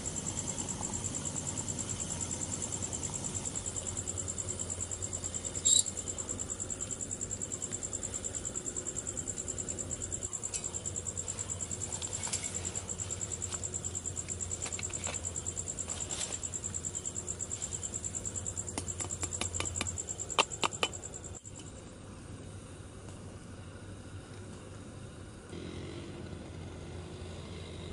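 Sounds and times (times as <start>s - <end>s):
insect chirping: 0.0s - 22.0s.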